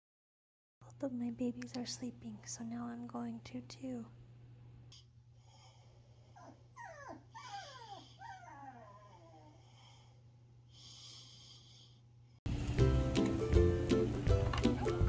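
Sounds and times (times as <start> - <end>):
puppy whining: 6.4 - 9.7, 14.6 - 15.0.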